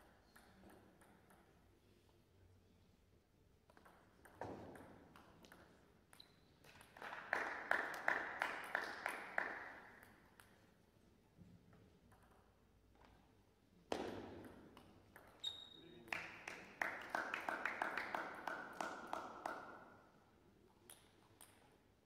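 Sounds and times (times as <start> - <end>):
table tennis ball hits: 13.9 - 15.4.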